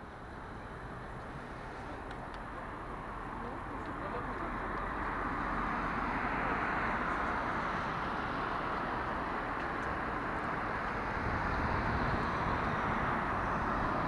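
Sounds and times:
vehicle rushing drone: 4.5s - 14.0s.

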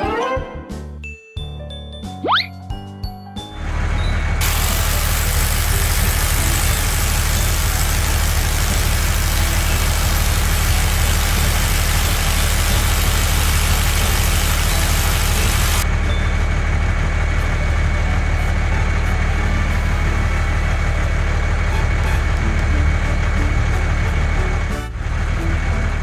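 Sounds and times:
low engine rumble: 3.6s - 26.0s
loud hissing noise: 4.4s - 15.8s.

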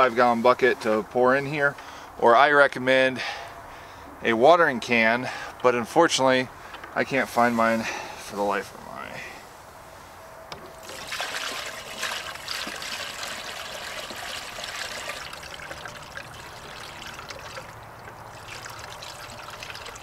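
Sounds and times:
water trickling into bucket: 10.6s - 20.0s.

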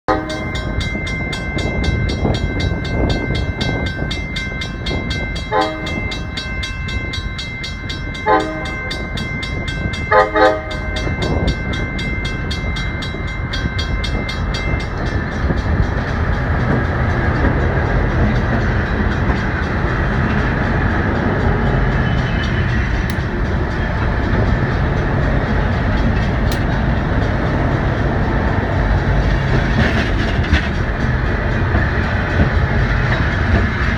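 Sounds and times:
locomotive horn blasts: 0.1s - 0.7s, 5.4s - 6.5s, 8.2s - 9.1s, 10.0s - 11.5s
locomotives rumbling past: 0.1s - 33.9s
railroad crossing bell ringing: 0.1s - 33.9s.

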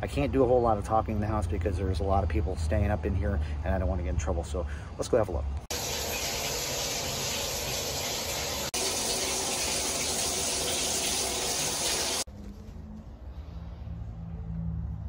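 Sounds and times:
running water hissing: 5.7s - 12.3s.

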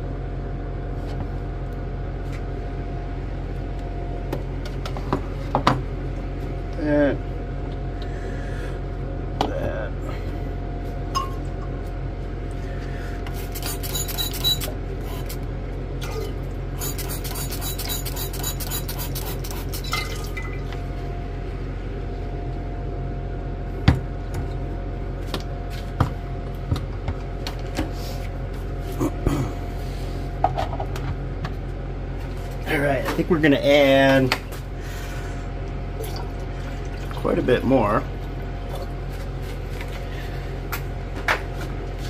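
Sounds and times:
electrical hum: 0.0s - 42.0s
glassware clinking: 11.2s - 11.4s
liquid pouring into glass: 19.9s - 20.7s.

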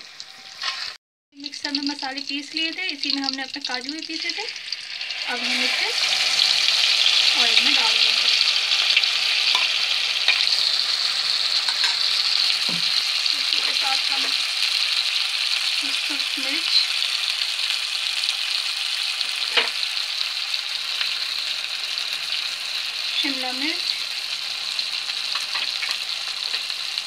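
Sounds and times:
paste sizzling in hot oil: 0.0s - 27.0s
spoon knocking pan: 9.5s - 10.6s, 11.6s - 13.0s, 25.3s - 26.7s.

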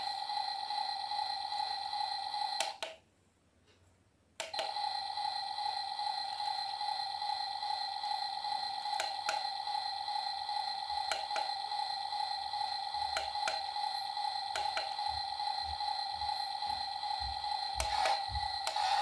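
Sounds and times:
steady electronic tone: 4.6s - 19.0s.

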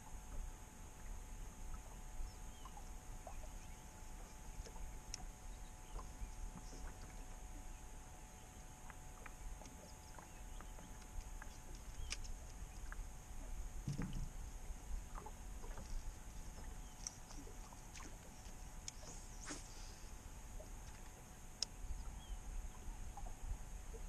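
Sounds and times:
boat low rumble: 0.0s - 24.0s
faint steady hum: 0.0s - 24.0s
light clicks: 8.9s - 13.0s.

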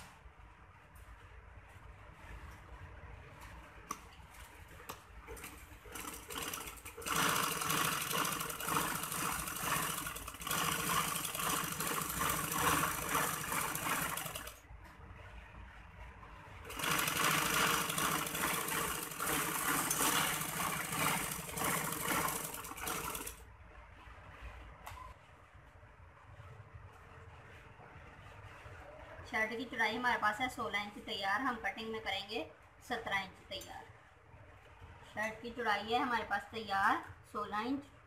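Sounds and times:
sewing machine clattering: 5.3s - 14.6s, 16.7s - 23.4s.

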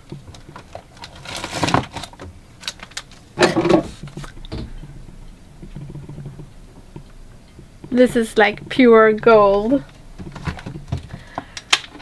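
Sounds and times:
wrapper rustling: 0.3s - 4.4s.

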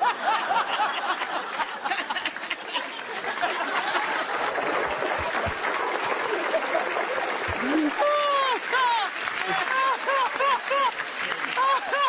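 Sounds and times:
audience laughing: 0.0s - 12.0s
crowd clapping: 0.0s - 12.0s
man laughing loudly: 7.5s - 10.8s.

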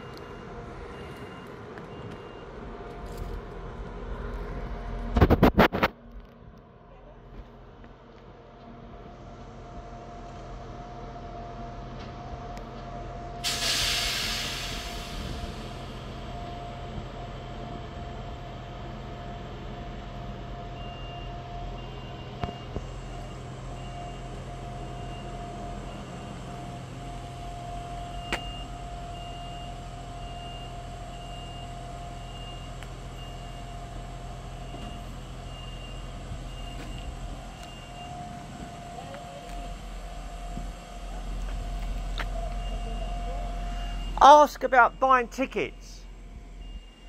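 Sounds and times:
diesel train engine idling: 0.0s - 5.2s, 6.2s - 47.0s
high beep: 42.6s - 46.0s.

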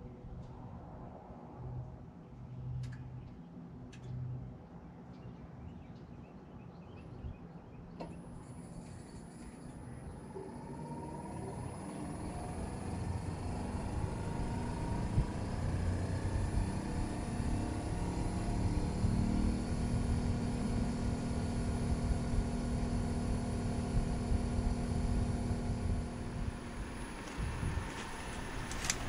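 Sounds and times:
air conditioner unit humming: 9.9s - 29.0s.

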